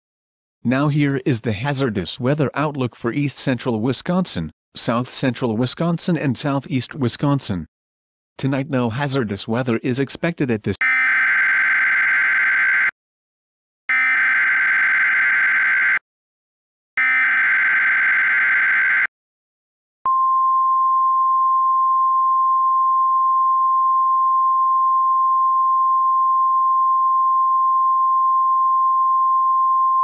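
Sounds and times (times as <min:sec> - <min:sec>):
steady alarm tone: 0:10.8 - 0:12.9, 0:13.9 - 0:16.0, 0:17.0 - 0:19.1.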